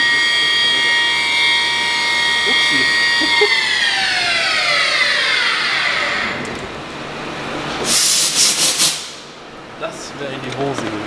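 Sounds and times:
milling machine spindle whine: 0.0 - 7.4.

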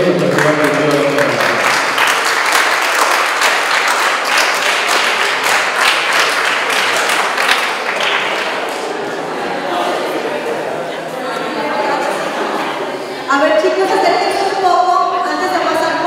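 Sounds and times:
people applauding: 0.0 - 10.2.

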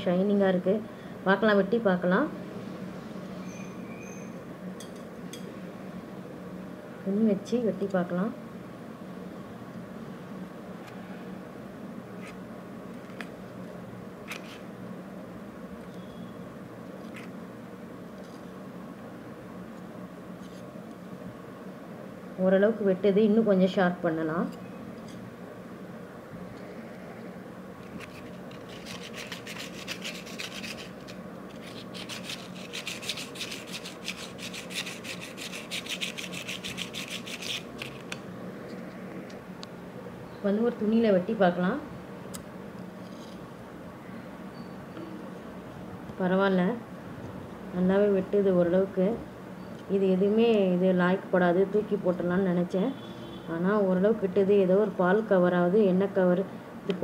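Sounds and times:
steady low hum: 0.0 - 57.0
blade rasping on sandpaper: 28.0 - 38.0.

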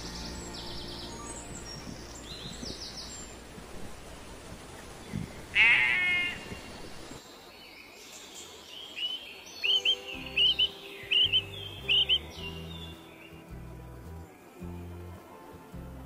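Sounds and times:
outdoor background hiss: 0.0 - 16.0
sheep bleating: 5.6 - 6.5
high bird chirps: 9.0 - 13.4.

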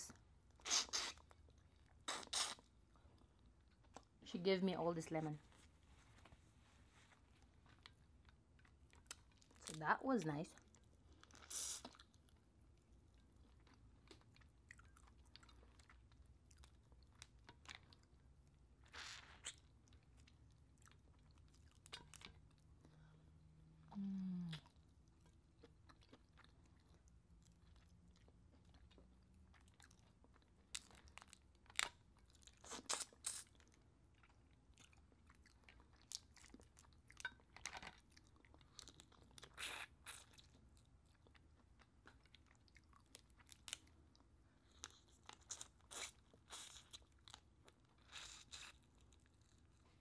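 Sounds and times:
wet clicks and crunches of chewing: 7.3 - 23.1, 23.8 - 50.0.

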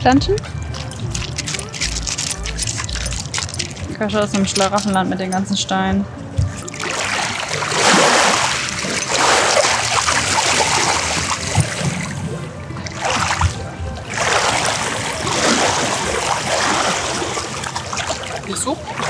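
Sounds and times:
faint background music: 0.0 - 19.0
dog splashing through water: 6.7 - 19.0.

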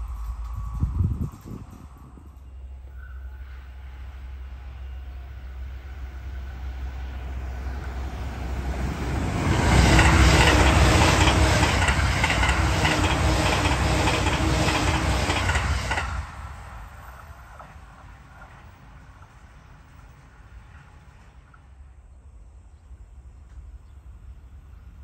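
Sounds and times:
electric train passing at speed: 0.0 - 25.0
wheels clacking over rail joints: 8.4 - 21.9.

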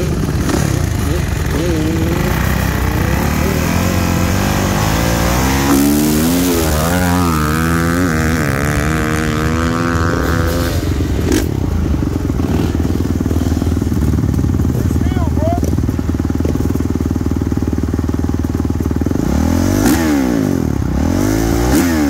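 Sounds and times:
dirt bike accelerating hard: 0.0 - 22.0
dirt bike engine: 0.0 - 22.0.

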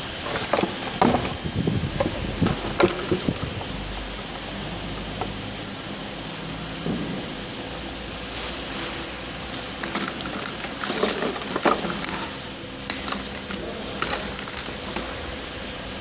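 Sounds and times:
steady machine hum: 0.0 - 16.0
plastic bottles clicking together: 2.0 - 3.6, 9.8 - 15.2.

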